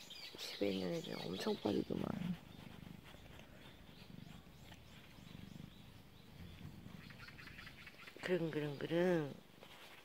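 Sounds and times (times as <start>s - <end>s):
cat purring: 1.1s - 8.6s.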